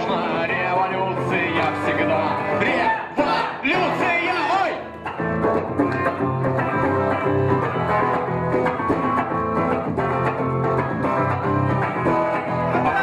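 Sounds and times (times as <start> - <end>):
guitars: 0.0 - 13.0
punk rock band playing: 0.0 - 13.0
steady bass line: 5.0 - 13.0.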